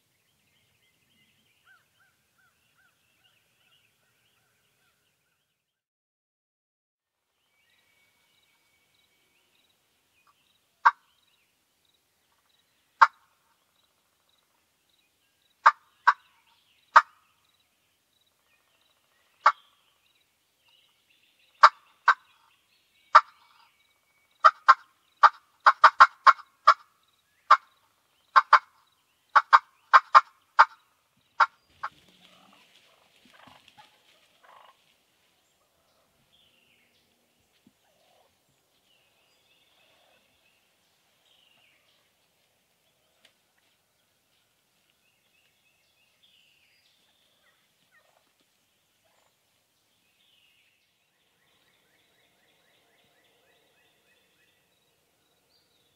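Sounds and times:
wild turkeys clucking: 0:13.0 - 0:13.3, 0:15.6 - 0:16.3, 0:16.9 - 0:17.2, 0:19.4 - 0:19.6, 0:21.6 - 0:22.4, 0:23.1 - 0:23.7, 0:24.4 - 0:26.9, 0:27.5 - 0:27.7, 0:28.3 - 0:30.8, 0:31.4 - 0:34.9, 0:47.9 - 0:48.4.

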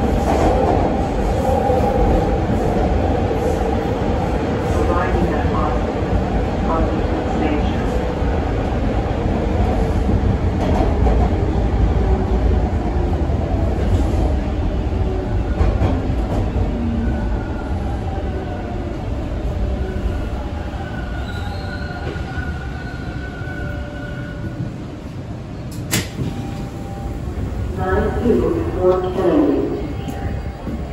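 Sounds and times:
subway train rumbling in tunnel: 0:00.0 - 0:30.9
high brake squeal: 0:21.2 - 0:22.2
sharp click: 0:25.7 - 0:26.2.

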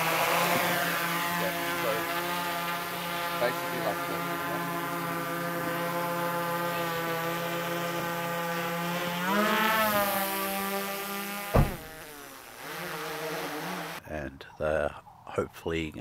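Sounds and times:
drone propellers whining: 0:00.0 - 0:14.0
sharp knock: 0:11.5 - 0:12.0.

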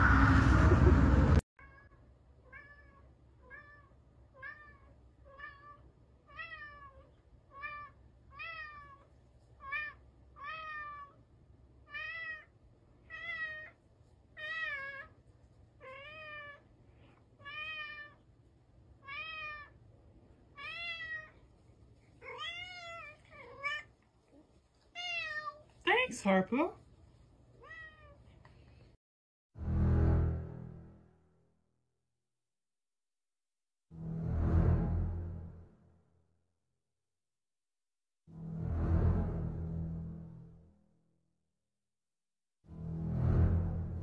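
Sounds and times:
cat meowing: 0:01.6 - 0:11.2, 0:11.9 - 0:12.5, 0:13.1 - 0:13.8, 0:14.4 - 0:15.2, 0:15.8 - 0:16.7, 0:17.4 - 0:18.2, 0:19.0 - 0:19.8, 0:20.5 - 0:21.4, 0:22.2 - 0:23.9, 0:25.0 - 0:25.6, 0:27.6 - 0:28.2.

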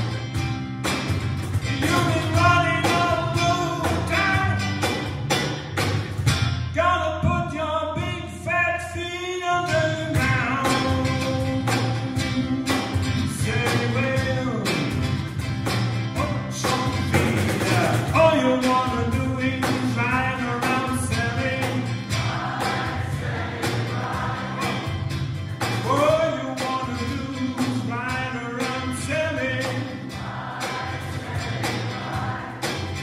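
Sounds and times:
guitars playing: 0:00.0 - 0:07.8, 0:09.2 - 0:33.0
bass: 0:00.0 - 0:33.0
cajon beat: 0:00.0 - 0:33.0
man singing: 0:01.7 - 0:04.8, 0:06.7 - 0:15.0, 0:16.2 - 0:22.1, 0:25.8 - 0:30.1.

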